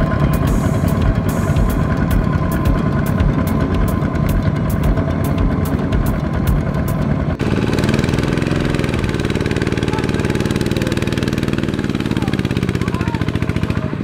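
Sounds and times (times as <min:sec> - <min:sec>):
sharp ticks: 0:00.0 - 0:07.3
diesel tractor engine chugging: 0:00.0 - 0:14.0.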